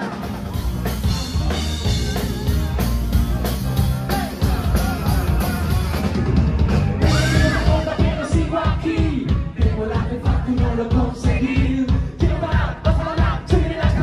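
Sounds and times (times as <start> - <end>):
drum kit: 0.0 - 14.0
heavy bass: 0.0 - 14.0
rock band playing live: 0.0 - 14.0
man singing: 4.1 - 6.1, 7.0 - 14.0.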